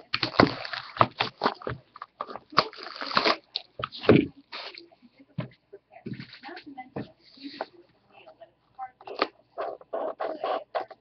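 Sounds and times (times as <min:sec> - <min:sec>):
shrink wrap tearing and crinkling: 0:00.0 - 0:04.8.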